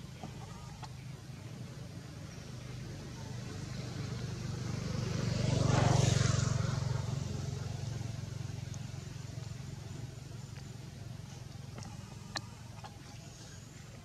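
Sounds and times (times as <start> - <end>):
vehicle engine passing by: 0.7 - 14.0.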